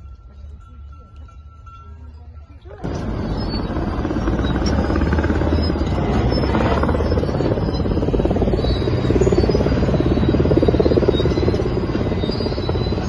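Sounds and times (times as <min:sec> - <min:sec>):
large engine running with chopping pulse: 0:02.8 - 0:13.0.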